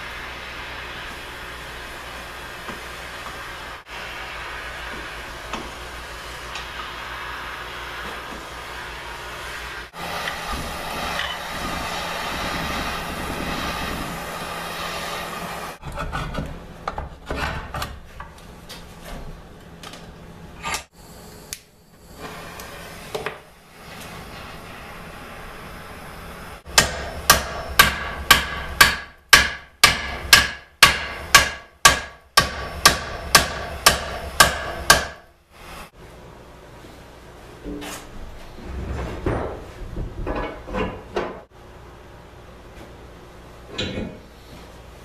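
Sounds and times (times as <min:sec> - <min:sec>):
propane torch hissing: 0:00.0 - 0:15.8, 0:21.0 - 0:27.8, 0:35.4 - 0:36.0
hammer ringing on hot steel: 0:26.7 - 0:35.2.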